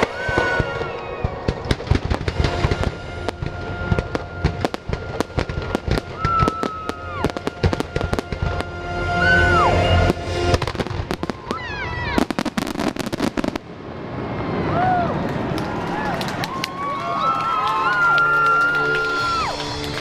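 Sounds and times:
fireworks bangs and crackles: 0.0 - 16.6
music playing: 2.2 - 12.0, 17.8 - 20.0.

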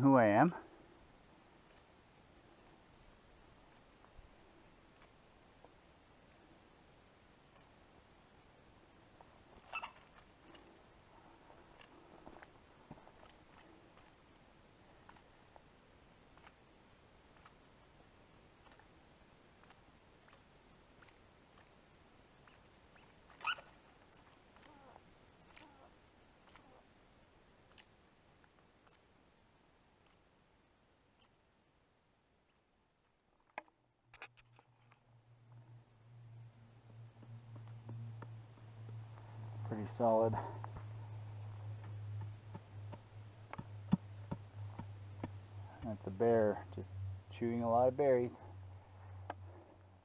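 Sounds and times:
small animal chirping: 1.7 - 1.9, 3.7 - 3.9, 4.9 - 5.1, 7.5 - 7.7, 9.6 - 10.7, 11.7 - 12.5, 13.1 - 14.2, 15.0 - 15.3, 16.3 - 16.6, 17.3 - 17.6, 18.6 - 18.8, 19.6 - 20.4, 21.0 - 21.7, 22.4 - 26.8, 27.7 - 27.9, 28.8 - 29.0, 30.0 - 30.2, 31.2 - 31.4.

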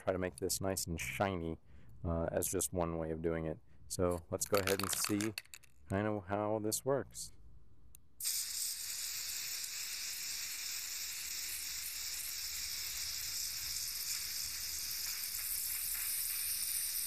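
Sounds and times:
spray paint can hissing: 4.4 - 5.5, 8.2 - 17.0.

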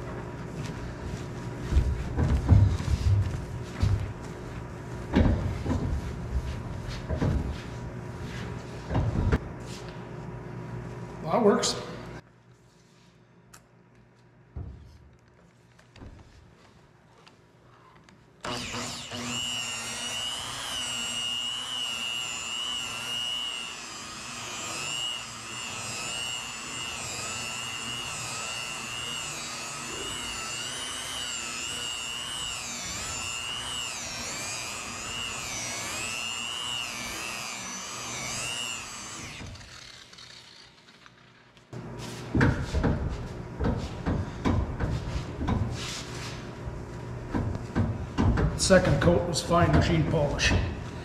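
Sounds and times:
towel rubbing strokes: 0.0 - 8.9, 45.0 - 46.5
rotary polisher motor whine: 18.4 - 41.9.

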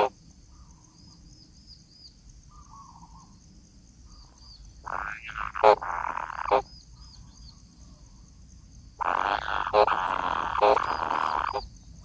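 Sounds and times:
bird nestlings raspy buzzing calls: 4.8 - 6.7, 9.0 - 11.7.

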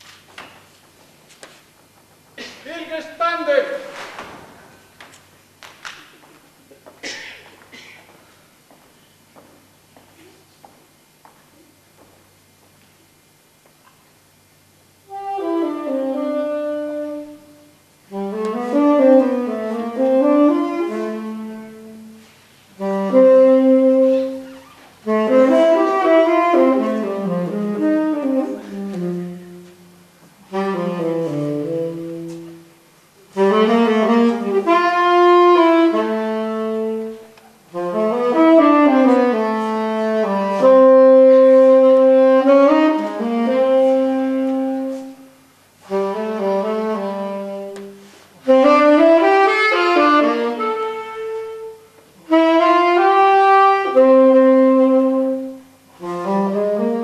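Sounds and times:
saxophone slow melody: 15.0 - 57.0.

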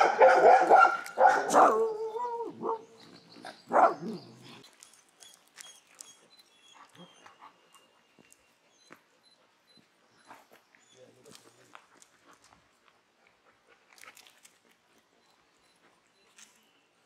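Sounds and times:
dog barking: 0.0 - 2.8, 3.7 - 4.2.

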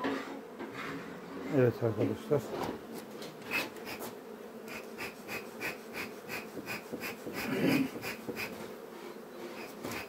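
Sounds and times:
honeybees humming: 0.0 - 10.0
wheezy pulse: 4.7 - 8.6.

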